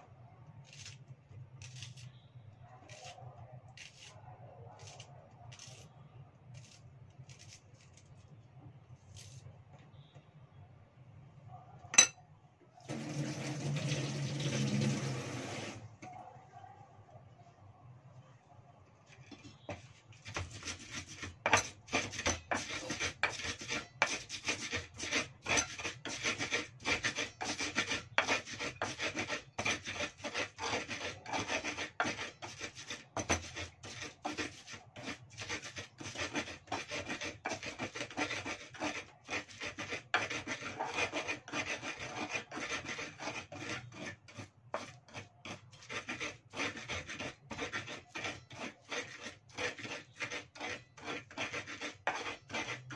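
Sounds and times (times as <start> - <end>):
pestle grinding in mortar: 20.2 - 52.9.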